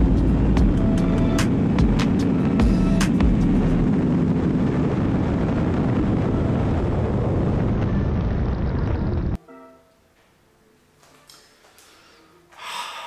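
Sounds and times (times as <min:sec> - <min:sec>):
motorcycle engine drone: 0:00.0 - 0:09.4
wind rush: 0:00.0 - 0:09.4.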